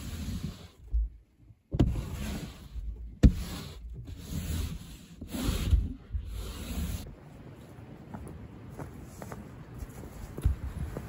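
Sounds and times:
snow brush scraping windshield: 0.0 - 1.1, 1.7 - 7.1.

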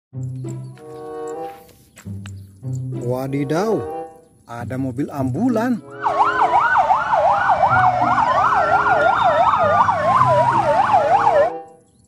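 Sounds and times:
siren yelping: 5.8 - 11.8
siren slowly rising and falling: 5.9 - 11.8.

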